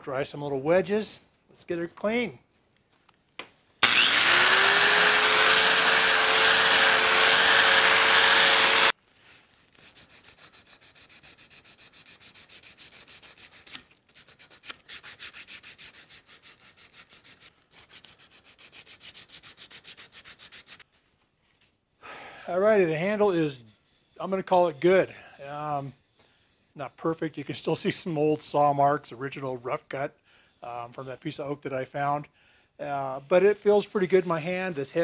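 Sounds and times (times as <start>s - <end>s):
electric power tool running: 3.8s - 8.9s
hand sanding wood: 3.8s - 9.0s, 9.6s - 21.0s, 22.6s - 27.2s, 33.1s - 35.0s.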